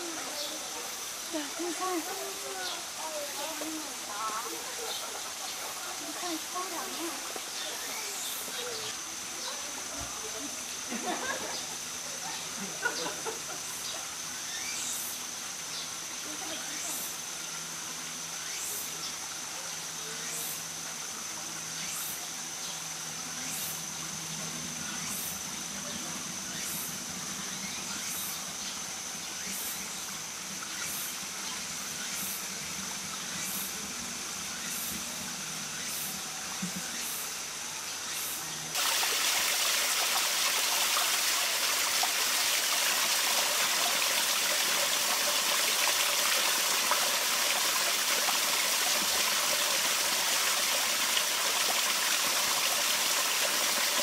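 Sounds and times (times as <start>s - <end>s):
rush of flowing water: 0.0s - 11.6s, 38.7s - 54.0s.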